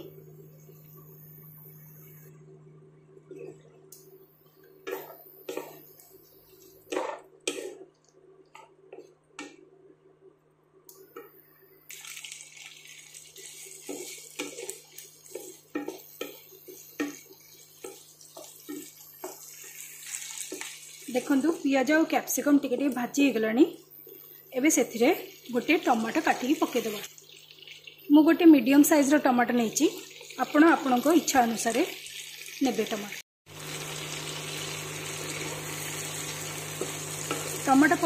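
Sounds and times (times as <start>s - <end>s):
spatula stirring and knocking pan: 4.8s - 5.9s, 6.6s - 7.9s, 13.4s - 21.6s
frying sizzle: 11.9s - 38.0s.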